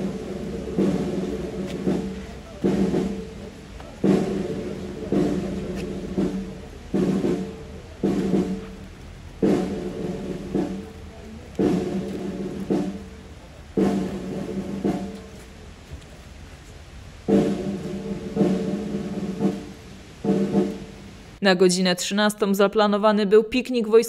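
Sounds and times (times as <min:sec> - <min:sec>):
drum beats: 0:00.0 - 0:21.4
brass chords: 0:17.2 - 0:21.4.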